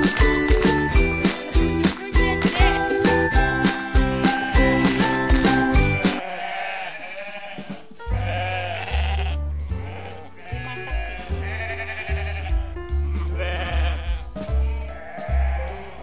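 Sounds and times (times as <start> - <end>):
goat bleating: 4.1 - 4.9, 6.2 - 16.0.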